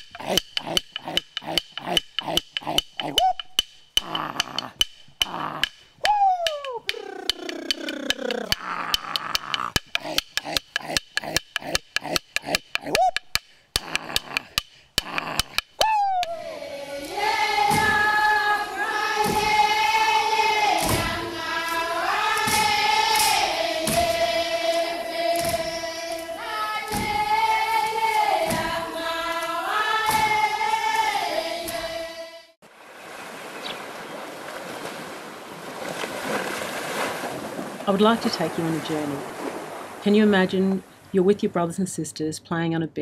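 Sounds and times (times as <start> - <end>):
women singing in unison: 16.1 - 32.6
surf washing on beach: 32.6 - 41.2.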